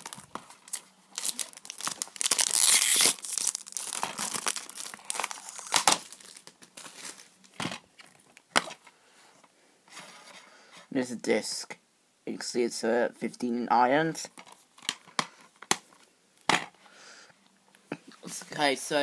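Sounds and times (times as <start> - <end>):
cellophane tearing and crinkling: 0.0 - 8.8.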